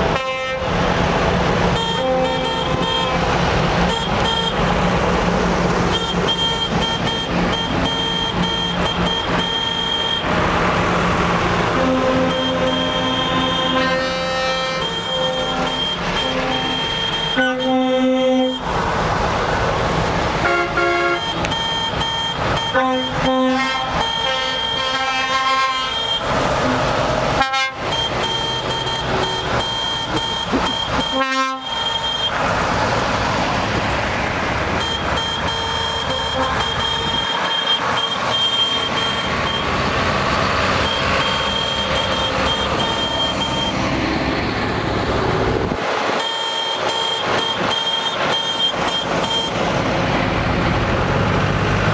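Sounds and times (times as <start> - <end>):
heavy vehicles driving past: 0.0 - 51.9
vehicle horns tooting: 0.1 - 0.8, 1.7 - 4.7, 5.8 - 10.4, 11.6 - 18.7, 20.4 - 32.4, 34.7 - 43.9, 46.1 - 49.7.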